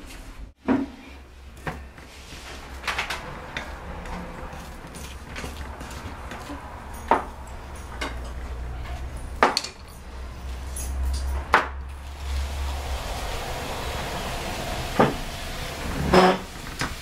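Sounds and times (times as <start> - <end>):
low steady hum: 11.8 - 17.0.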